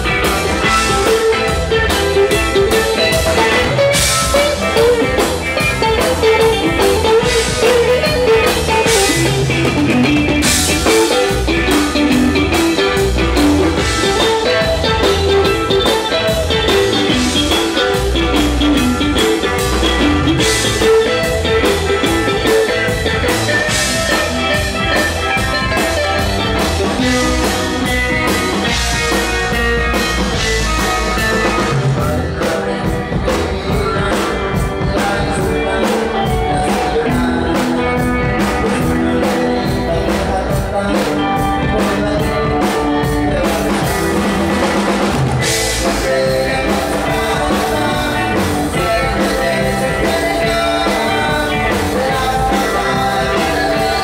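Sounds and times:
drum kit beat: 0.0s - 54.0s
electric guitars: 0.0s - 54.0s.

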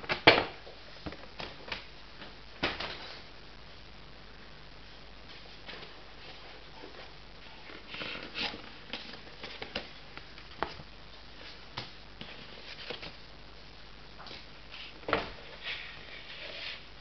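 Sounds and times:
paper rustling and crinkling: 5.2s - 13.3s.

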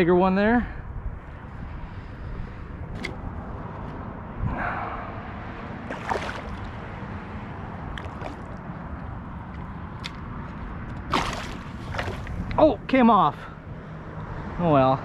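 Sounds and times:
water splashing and sloshing: 5.6s - 12.6s.

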